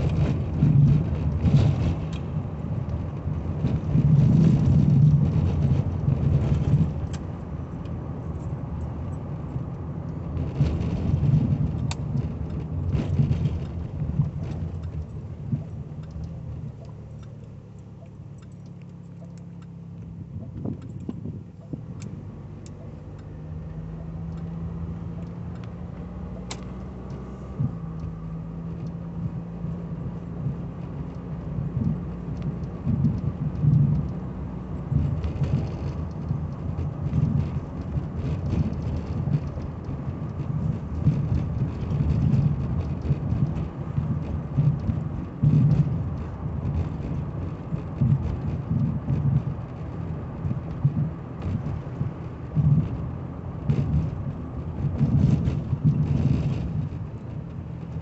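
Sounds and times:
car engine hum: 0.0 - 58.0
road rumble: 0.0 - 58.0.

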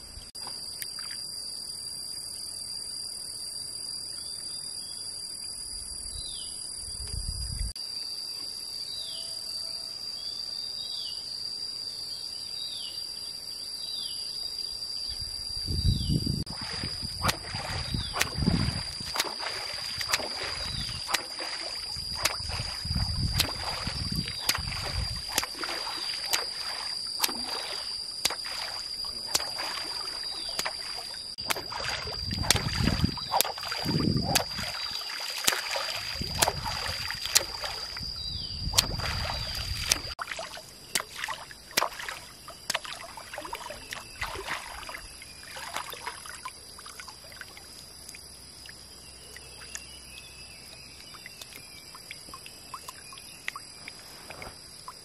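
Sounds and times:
water splashing from wading: 16.5 - 38.1, 38.7 - 47.8.

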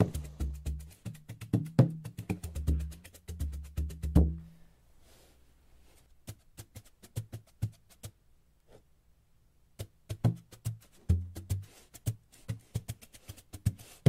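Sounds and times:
sharp wood-like drum taps: 0.0 - 4.4.

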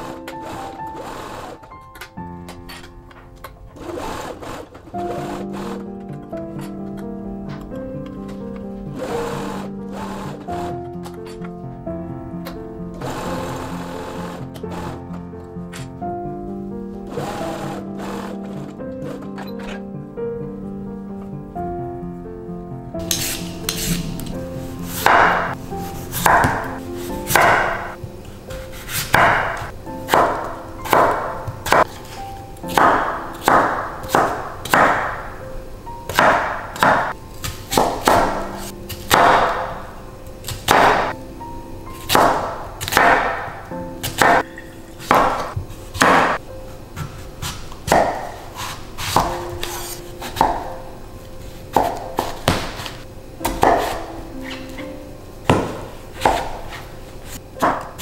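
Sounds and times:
soft background music: 0.0 - 58.0
knife chopping on wooden board: 25.0 - 25.5, 26.2 - 26.7, 42.1 - 43.4, 45.1 - 46.4, 47.0 - 50.7, 51.7 - 54.0, 55.5 - 56.8.

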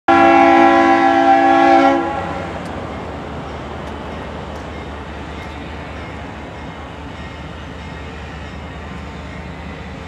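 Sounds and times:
locomotive air horn chord: 0.1 - 2.6
train rumble: 0.1 - 10.0.

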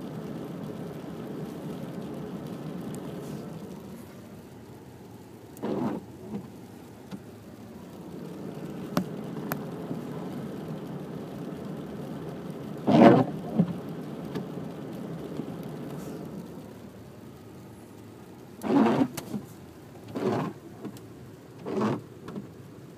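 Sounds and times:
car cabin hum: 0.1 - 22.9
wiper blade rubbing on glass: 5.6 - 6.0, 18.6 - 19.4, 20.1 - 20.6, 21.6 - 22.0.

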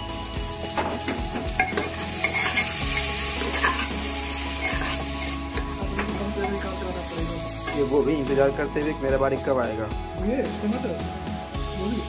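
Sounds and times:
potatoes frying in oil: 0.0 - 12.0
metal spatula scraping pan: 1.6 - 6.7.

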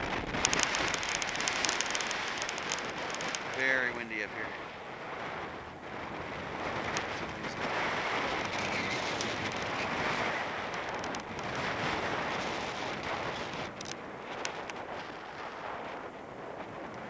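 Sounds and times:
wind buffeting microphone: 0.0 - 17.0
light clicks: 0.4 - 3.6.

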